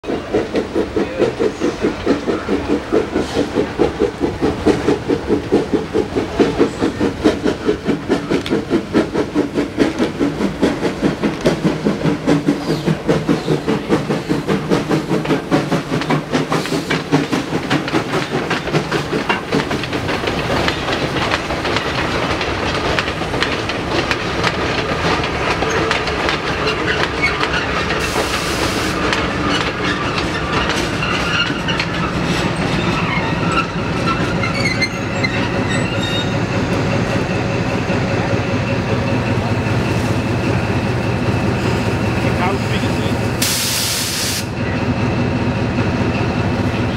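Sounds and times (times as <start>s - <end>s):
steam locomotive chuffing: 0.0s - 46.9s
carriage wheels clattering over rail joints: 0.2s - 28.4s, 29.0s - 36.5s.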